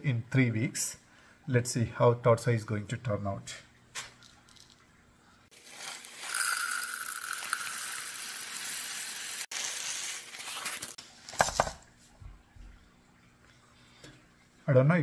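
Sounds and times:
clay pebbles pouring into basket: 5.6 - 11.0.

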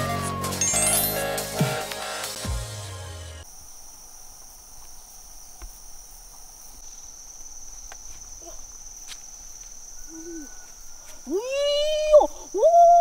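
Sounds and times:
music jingle: 0.0 - 3.4
insects buzzing: 0.1 - 13.0.

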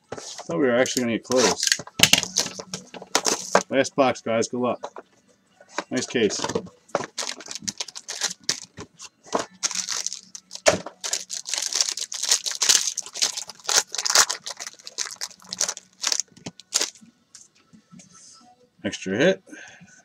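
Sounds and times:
plastic shrink wrap crinkling: 0.9 - 3.6, 5.9 - 8.8, 9.5 - 17.0.

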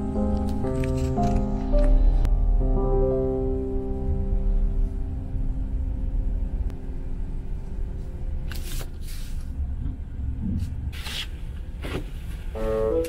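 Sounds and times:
car cabin road noise: 6.3 - 13.0.

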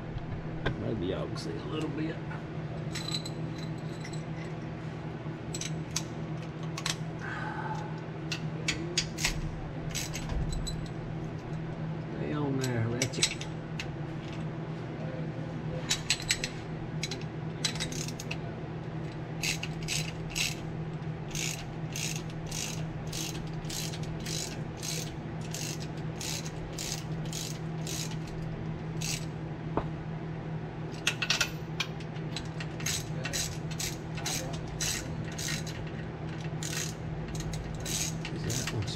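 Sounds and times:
steady low hum: 0.0 - 38.9
ratchet wrench clicking: 16.0 - 18.4, 19.4 - 20.6, 21.3 - 28.4, 29.0 - 29.3, 32.4 - 35.8, 36.6 - 38.8.

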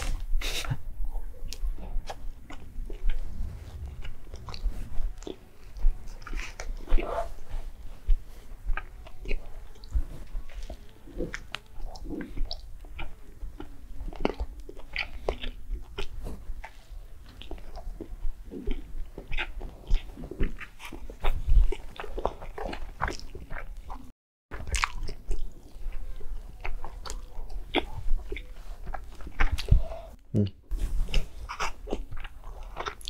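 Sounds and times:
person chewing food: 0.0 - 33.0.

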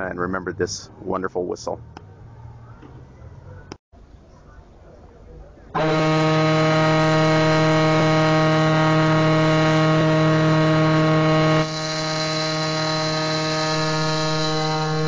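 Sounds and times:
low steam whistle blast: 5.8 - 15.0.

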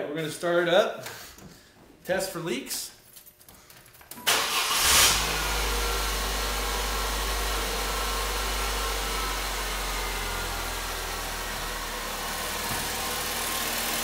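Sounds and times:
car engine idling: 4.4 - 14.0.

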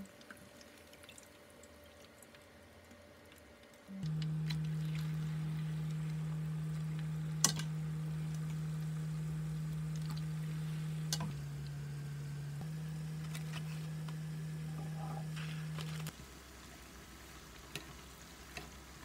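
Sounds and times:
steady low hum: 3.8 - 16.8
vegetables frying in oil: 15.8 - 19.0.

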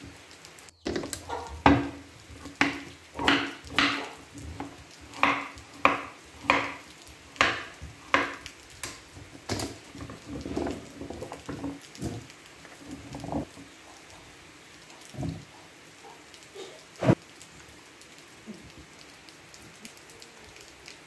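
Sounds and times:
knife chopping pumpkin on board: 1.7 - 4.2, 5.1 - 6.8, 7.4 - 8.4.

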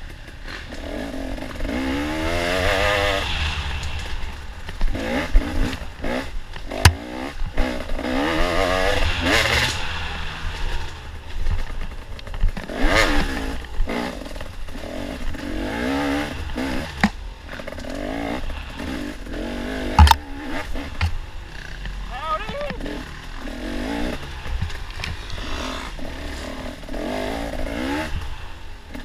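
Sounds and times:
motorcycle engine revving: 0.0 - 29.0
sharp knocks: 6.8 - 7.0, 20.0 - 20.2.

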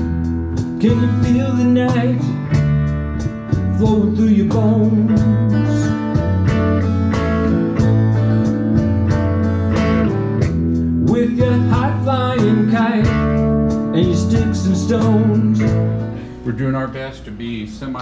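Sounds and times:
electric guitar: 0.0 - 16.6
bass line: 0.0 - 18.0
steady drum beat: 0.0 - 18.0
man singing: 0.8 - 2.6, 3.5 - 6.1, 11.0 - 16.9.

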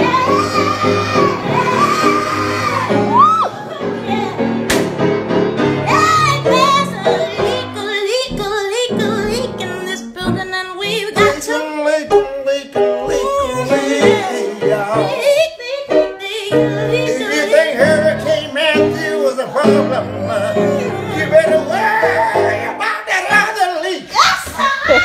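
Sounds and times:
woman and man singing gospel: 11.0 - 25.0.

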